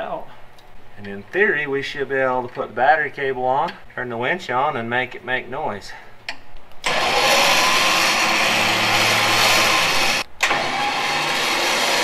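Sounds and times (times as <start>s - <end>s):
winch motor humming and whining: 6.8s - 12.0s.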